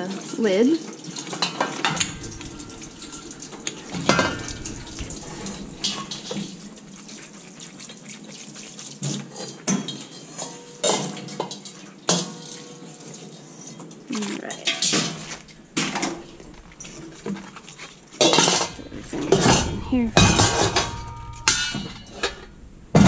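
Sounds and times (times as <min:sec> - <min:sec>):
water spray hissing on steel: 0:00.4 - 0:14.0.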